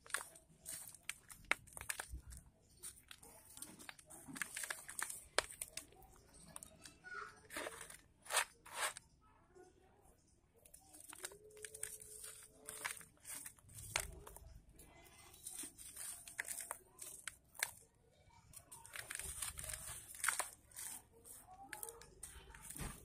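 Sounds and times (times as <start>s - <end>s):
hands crumbling dry dirt clumps: 0.0s - 5.9s.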